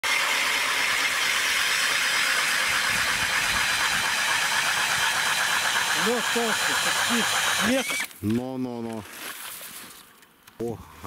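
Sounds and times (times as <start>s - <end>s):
cordless drill whirring: 0.0s - 8.2s.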